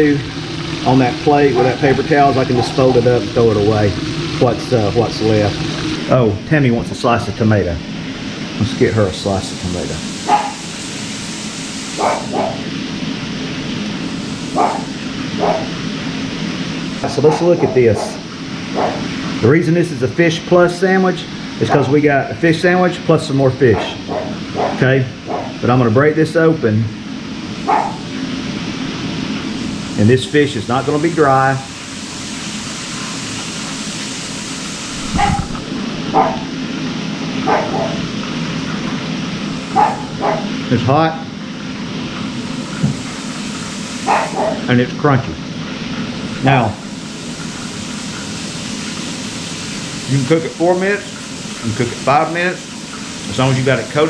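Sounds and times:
steady hiss: 0.0s - 54.0s
small dog barking: 10.3s - 10.6s, 12.0s - 12.7s, 14.6s - 15.8s, 18.8s - 19.1s, 23.7s - 25.6s, 27.6s - 28.1s, 35.1s - 36.5s, 37.4s - 38.0s, 39.7s - 40.6s, 44.0s - 44.7s.

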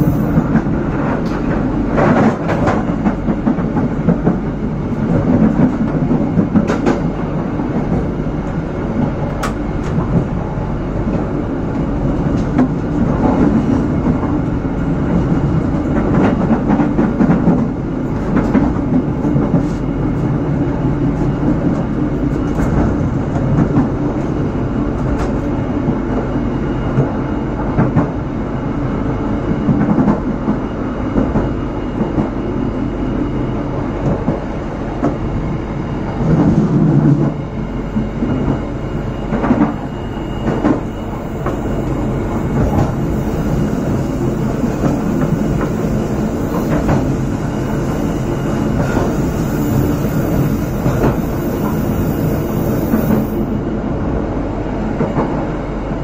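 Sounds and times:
train wheels rumbling on rail: 0.0s - 56.0s.

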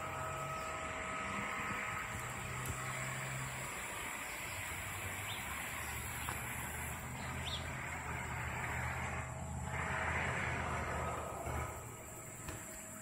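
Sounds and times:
low hum of vehicle engines: 0.0s - 13.0s
vehicle passing: 0.0s - 13.0s
bird chirps: 3.5s - 9.6s.

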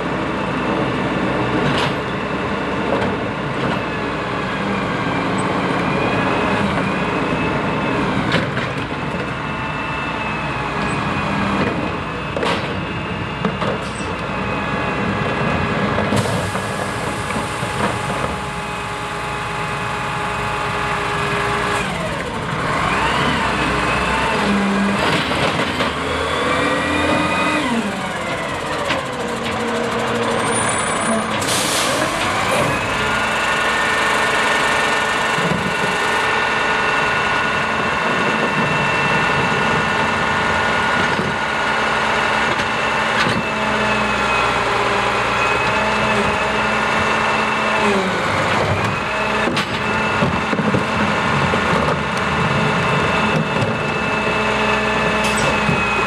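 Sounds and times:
diesel truck engine: 0.0s - 56.0s
air brake hiss: 31.4s - 32.2s.

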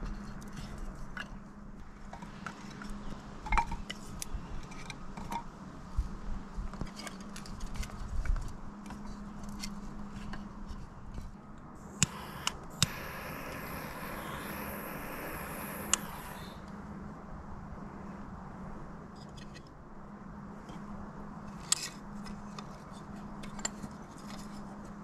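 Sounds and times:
steady low hum: 0.0s - 25.0s
steady hiss: 11.7s - 18.2s
sharp clicks: 12.0s - 16.5s.

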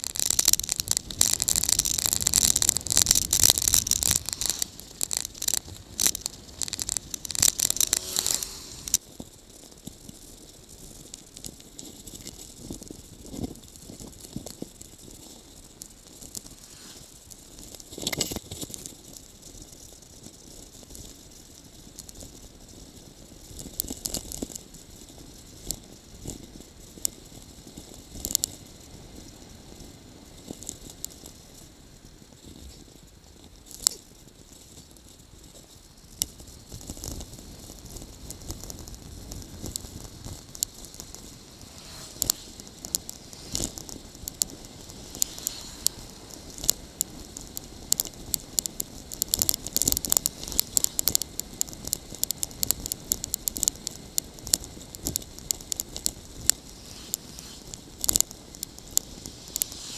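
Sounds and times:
steady hiss: 0.0s - 9.6s, 15.2s - 18.6s, 35.4s - 59.9s
bicycle rattling and clicking: 0.0s - 59.9s.

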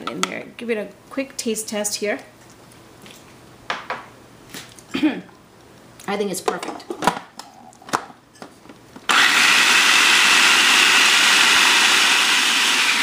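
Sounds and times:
food processor chopping: 9.1s - 13.0s.

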